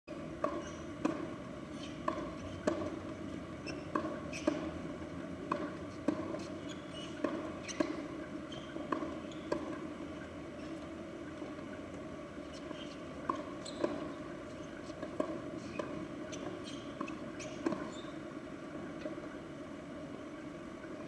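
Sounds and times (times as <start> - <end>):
steady background hum: 0.1 - 21.0
tennis ball bouncing on court: 0.3 - 19.4
tennis racket striking ball: 0.4 - 3.0, 3.6 - 4.8, 5.5 - 9.8, 13.2 - 18.2.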